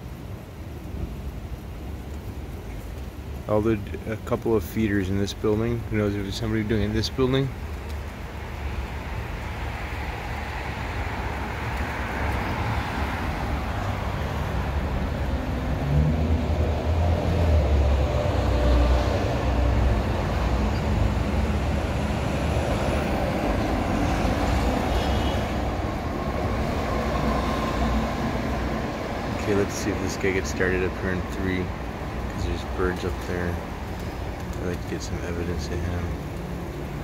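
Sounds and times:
large vehicle passing rumble: 0:06.8 - 0:37.0.

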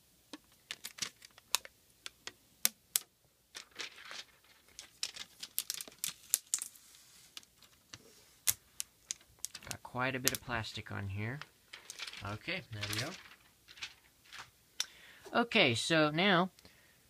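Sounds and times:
plastic film peeling crackles: 0:00.5 - 0:01.7, 0:03.6 - 0:10.6, 0:11.8 - 0:14.5.

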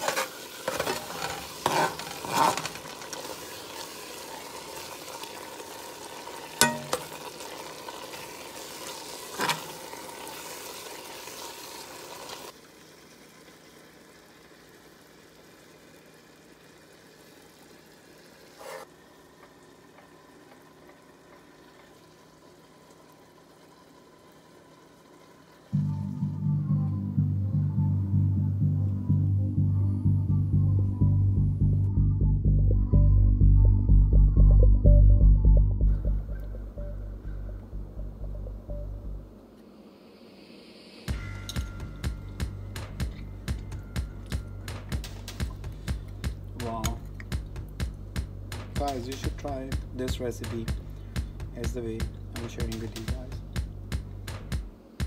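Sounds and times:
spatula scraping a metal pot: 0:00.0 - 0:03.1
curry sizzling: 0:00.0 - 0:25.9, 0:39.3 - 0:55.0.

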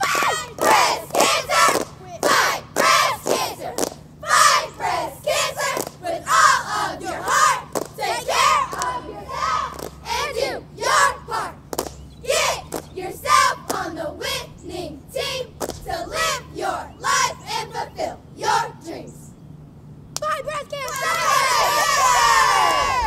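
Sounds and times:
sharp claps: 0:00.0 - 0:04.0, 0:05.7 - 0:06.0, 0:07.2 - 0:08.0, 0:08.7 - 0:09.0, 0:09.7 - 0:10.0, 0:11.7 - 0:12.1, 0:12.7 - 0:13.0, 0:15.6 - 0:15.9, 0:20.1 - 0:21.3
girls shouting a cheer in unison: 0:00.0 - 0:11.2, 0:20.2 - 0:23.0.

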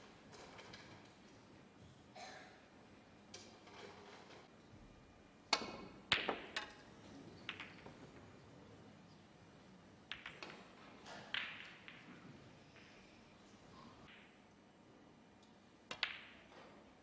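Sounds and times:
cue striking ball: 0:05.6 - 0:06.8, 0:11.2 - 0:12.2
snooker balls clacking: 0:05.6 - 0:08.3, 0:10.1 - 0:13.1, 0:15.9 - 0:16.9.

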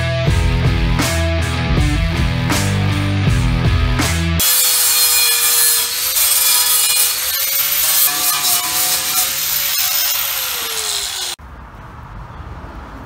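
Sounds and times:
angle grinder grinding steel: 0:04.4 - 0:11.4.

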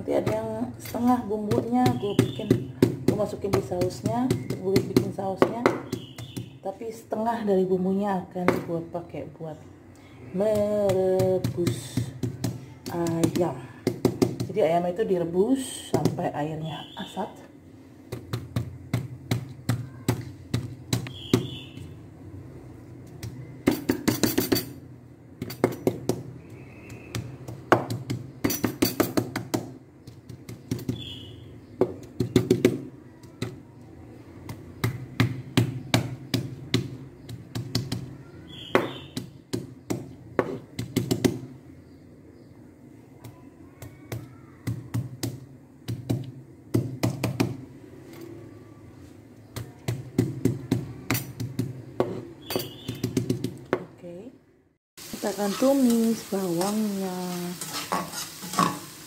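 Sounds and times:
knife chopping on wooden board: 0:34.4 - 0:41.5.

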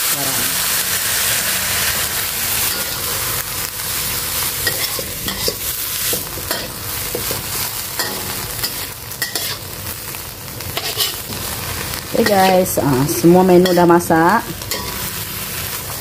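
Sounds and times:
stir-fry sizzling in a wok: 0:00.0 - 0:16.0
metal spatula scraping a pan: 0:04.5 - 0:09.8, 0:10.8 - 0:16.0.

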